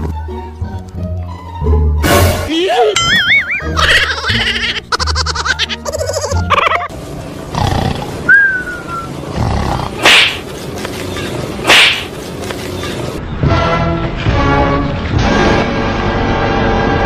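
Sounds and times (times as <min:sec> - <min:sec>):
steady rustling noise: 0:10.0 - 0:13.2.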